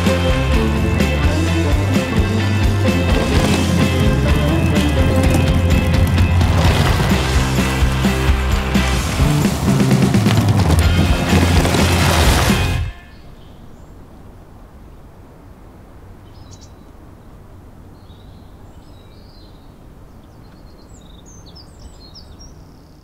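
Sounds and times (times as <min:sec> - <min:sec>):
music: 0:00.0 - 0:13.0
outdoor background hiss: 0:07.2 - 0:23.0
small birds chirping: 0:16.2 - 0:17.0, 0:17.9 - 0:23.0.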